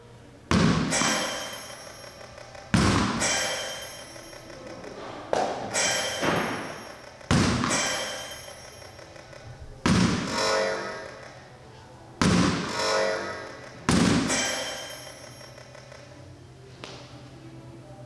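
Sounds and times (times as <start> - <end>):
ball hitting target wall: 2.7 - 4.0, 5.3 - 8.6, 9.8 - 11.3, 12.2 - 15.0.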